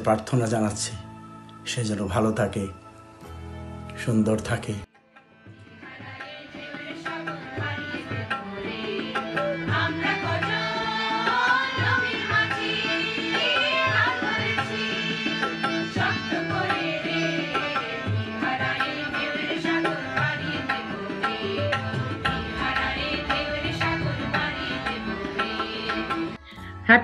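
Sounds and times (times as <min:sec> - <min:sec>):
women singing in chorus: 0:05.8 - 0:26.4
steady drum: 0:22.1 - 0:26.3.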